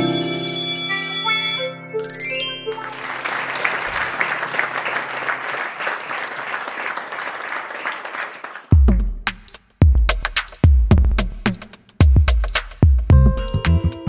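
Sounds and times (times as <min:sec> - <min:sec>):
crowd applause: 0:02.6 - 0:08.8.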